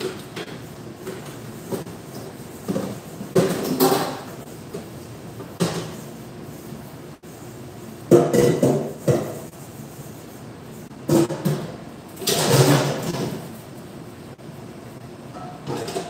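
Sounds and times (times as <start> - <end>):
dishes clattering in metal sink: 0.0 - 4.8, 8.1 - 9.5, 11.1 - 13.5, 15.3 - 16.0.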